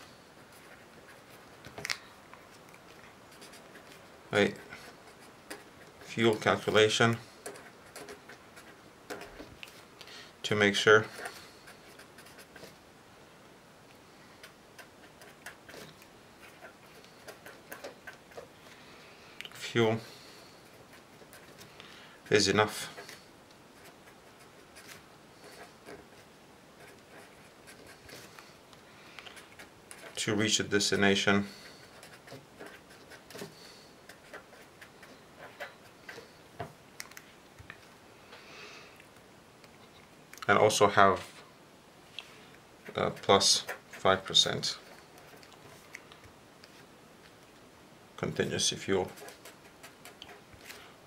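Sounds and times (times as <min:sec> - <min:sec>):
marker writing on paper: 0:11.0 - 0:12.7, 0:23.8 - 0:28.5.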